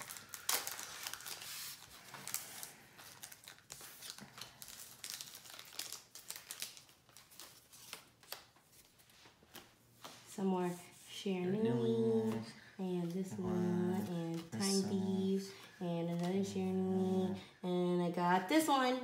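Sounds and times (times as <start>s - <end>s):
foil wrappers crinkling and tearing: 0.0s - 9.6s.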